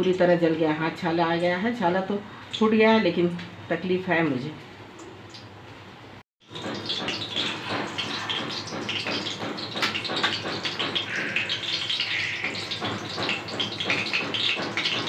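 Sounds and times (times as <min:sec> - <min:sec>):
food sizzling in hot oil: 0:06.4 - 0:15.0.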